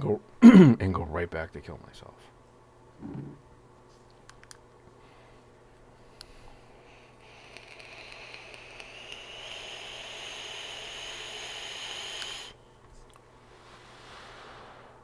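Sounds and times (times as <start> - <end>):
vape coil hissing: 6.2 - 12.6.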